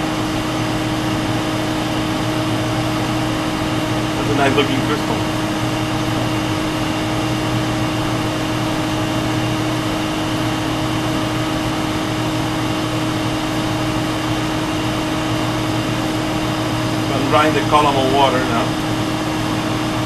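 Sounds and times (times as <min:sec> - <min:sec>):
machine hum with hiss: 0:00.0 - 0:20.0.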